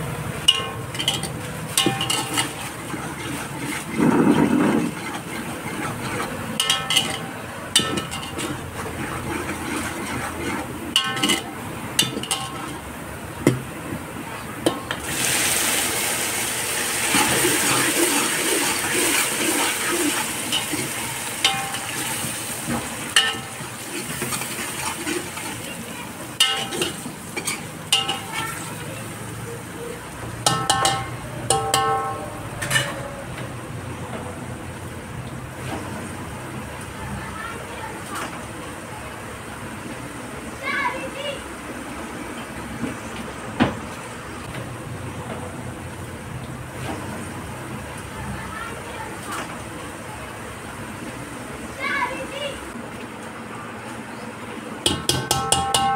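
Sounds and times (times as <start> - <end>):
tomatoes sizzling in oil: 0.0 - 33.0
spoon scraping metal pot: 0.4 - 12.8.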